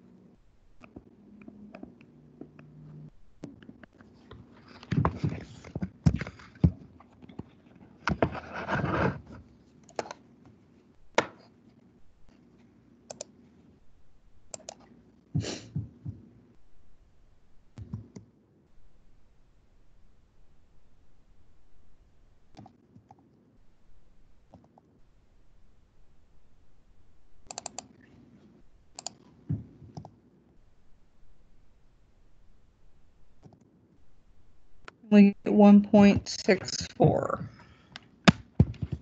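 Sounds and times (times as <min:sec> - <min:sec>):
mouse and keyboard clicks: 0:09.8 - 0:10.2, 0:14.5 - 0:14.9, 0:27.4 - 0:27.9, 0:29.0 - 0:29.3.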